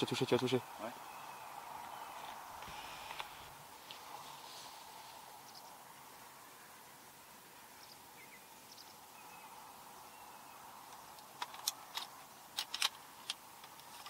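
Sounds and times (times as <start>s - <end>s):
bird chirps: 0.6s - 3.1s, 7.8s - 10.7s.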